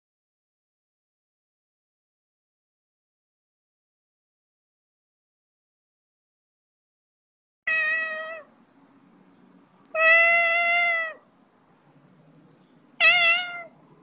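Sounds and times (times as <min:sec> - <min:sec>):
cat meowing: 0:07.7 - 0:08.5, 0:09.9 - 0:11.2, 0:13.0 - 0:13.8.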